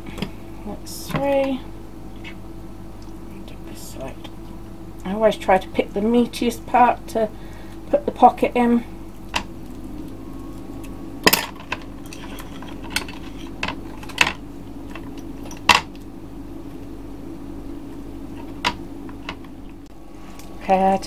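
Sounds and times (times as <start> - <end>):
utensils and dishes clinking: 10.5 - 14.4.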